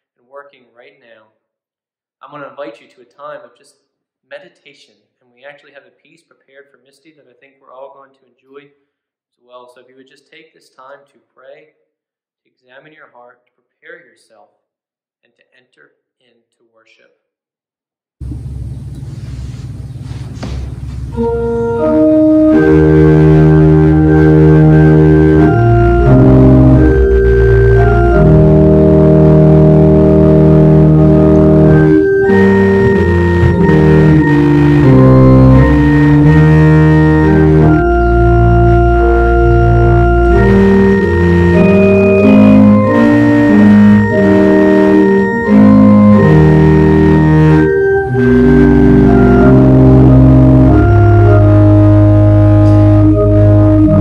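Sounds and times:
organ playing sustained chords: 0:21.1 - 0:54.0.

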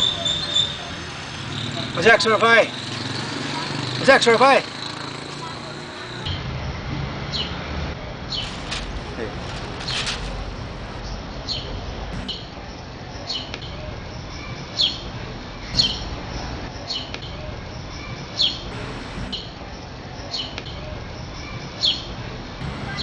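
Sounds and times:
sparrow chirping: 0:00.0 - 0:02.1, 0:08.3 - 0:08.6, 0:11.0 - 0:18.7, 0:19.3 - 0:22.2.

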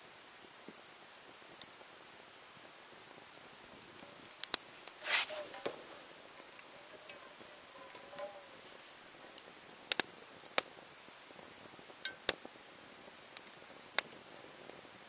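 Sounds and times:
campfire crackling: 0:00.0 - 0:15.0
fire pops: 0:02.7 - 0:12.6, 0:13.2 - 0:14.9
brief hiss: 0:05.0 - 0:06.0.

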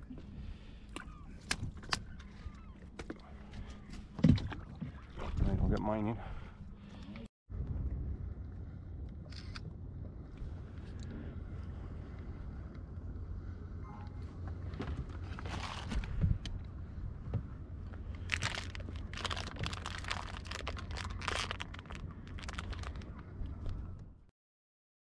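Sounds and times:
low rumble: 0:00.0 - 0:24.3
crinkling rustles: 0:15.1 - 0:16.2, 0:18.2 - 0:23.8.

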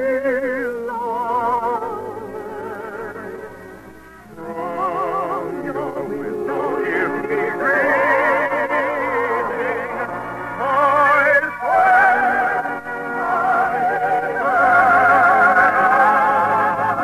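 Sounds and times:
operatic singing voice: 0:00.0 - 0:03.7, 0:04.3 - 0:17.0
orchestra playing: 0:04.3 - 0:17.0.

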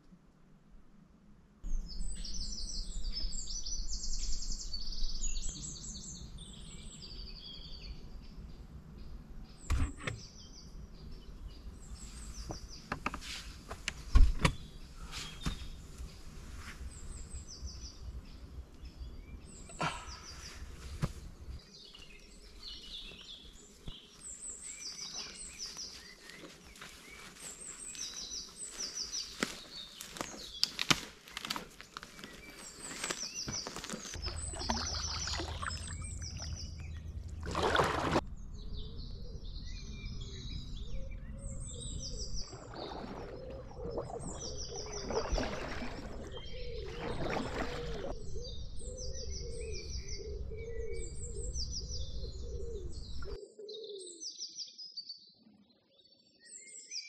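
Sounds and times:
songbirds singing: 0:01.6 - 0:57.0
footsteps on forest floor: 0:21.9 - 0:35.8
twigs snapping: 0:29.4 - 0:34.2.

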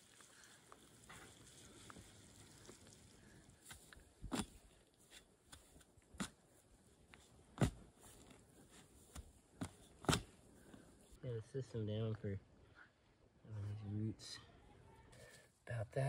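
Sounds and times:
shovel thudding into soil: 0:03.7 - 0:04.6, 0:07.6 - 0:07.8, 0:09.0 - 0:10.4.

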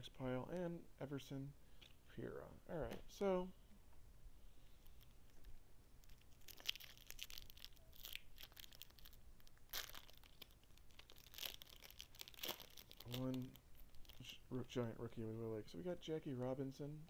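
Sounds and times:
cards rustling and crinkling: 0:04.7 - 0:14.3.

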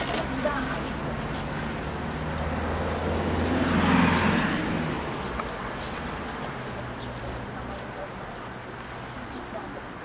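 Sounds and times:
vehicle passing by: 0:00.2 - 0:07.7.

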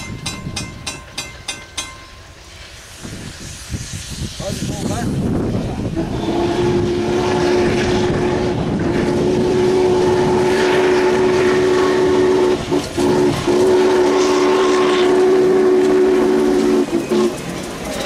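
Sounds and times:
passing train running noise: 0:00.0 - 0:18.0
steam locomotive chime whistle: 0:06.0 - 0:18.0.

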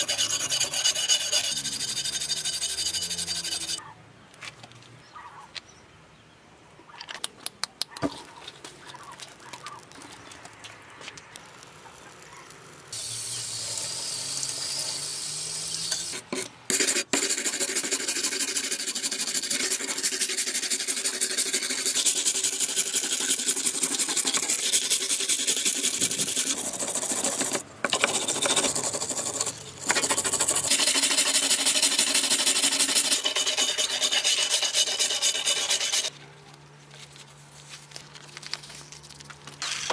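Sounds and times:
wire brush scrubbing metal: 0:00.0 - 0:03.8, 0:13.0 - 0:36.1.

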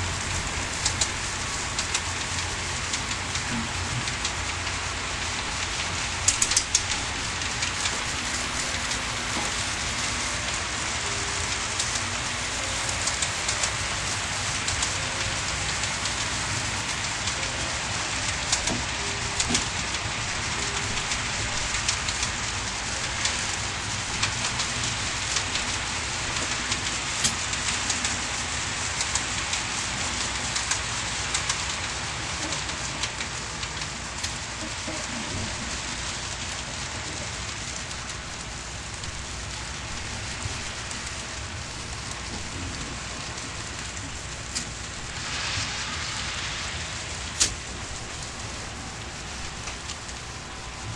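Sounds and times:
model train wheels clattering: 0:05.6 - 0:10.6.

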